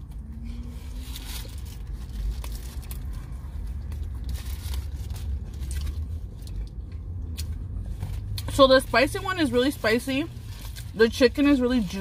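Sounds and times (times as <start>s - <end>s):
low hum inside a car: 0.0s - 12.0s.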